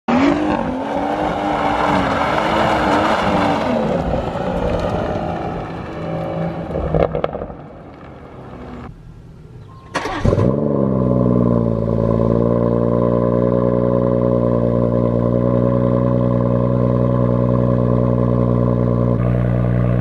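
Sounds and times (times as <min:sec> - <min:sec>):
car engine accelerating hard: 0:00.1 - 0:07.7, 0:10.0 - 0:20.0
exhaust cracks: 0:01.8 - 0:09.2.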